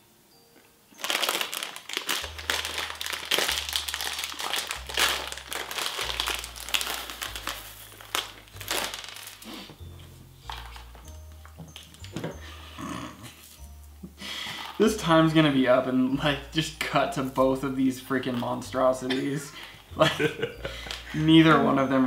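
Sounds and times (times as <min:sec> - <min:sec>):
plastic bag crinkling: 0:01.0 - 0:12.3, 0:14.4 - 0:15.4.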